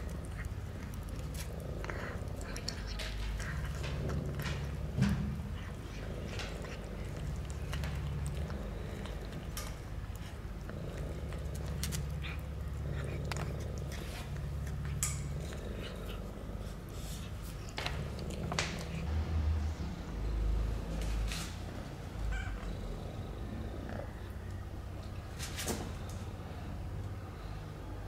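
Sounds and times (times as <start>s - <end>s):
cat chewing and lip-smacking: 0.0s - 19.2s
cat purring: 0.0s - 27.7s.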